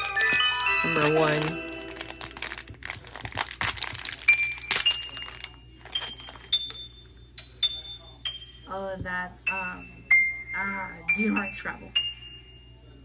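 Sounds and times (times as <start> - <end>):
foil bag crinkling and tearing: 0.0 - 6.8.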